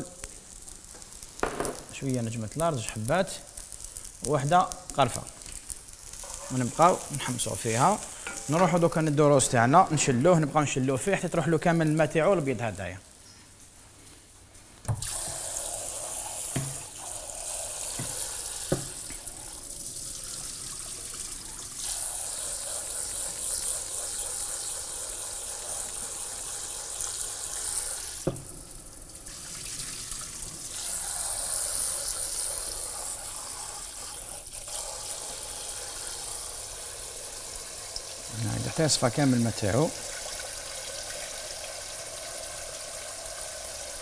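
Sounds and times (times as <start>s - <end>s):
tap water splashing into bowl: 16.5s - 16.9s.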